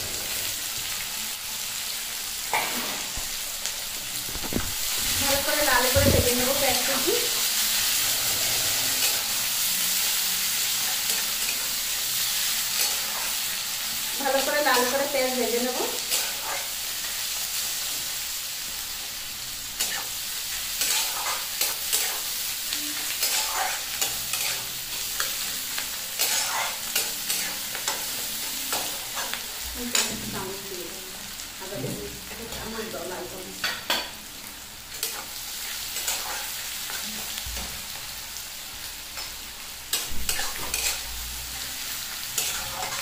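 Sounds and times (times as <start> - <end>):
onions sizzling in hot oil: 0.0 - 43.0
spatula scraping a pan: 7.7 - 11.8, 19.8 - 22.4, 23.2 - 25.4, 26.2 - 28.1, 35.0 - 37.0, 39.9 - 41.0, 42.4 - 43.0.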